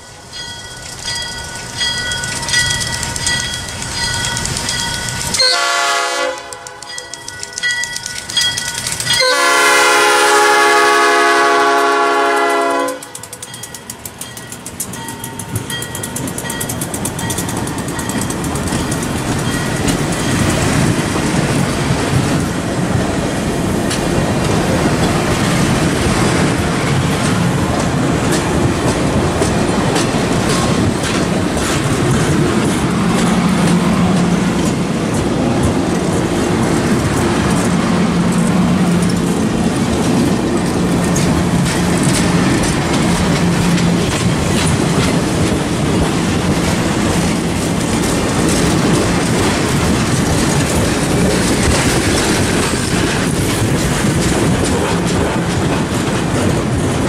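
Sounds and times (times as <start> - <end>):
train wheels clattering over rails: 0.4 - 57.0
locomotive horn blasts: 5.4 - 6.9, 9.2 - 13.2.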